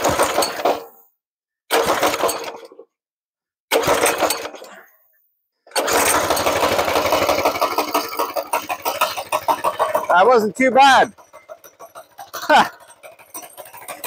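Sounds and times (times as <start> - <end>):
small engine pull-starting: 0.0 - 1.0, 1.7 - 2.9, 3.7 - 4.9, 5.7 - 14.0.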